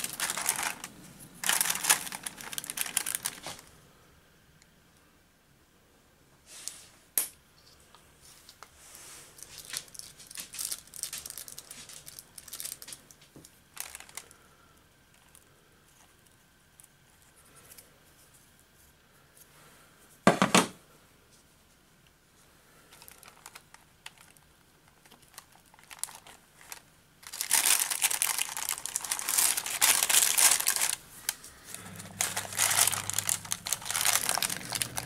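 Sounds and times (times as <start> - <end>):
crinkling clatter: 0.0 - 3.7, 9.4 - 14.4, 22.8 - 35.0
paper rustling: 0.0 - 3.7, 25.0 - 35.0.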